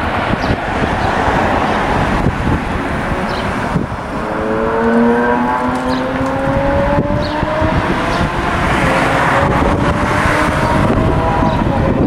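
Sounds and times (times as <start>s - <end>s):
car engine accelerating: 0.0s - 12.0s
wind rumble on microphone: 0.0s - 12.0s.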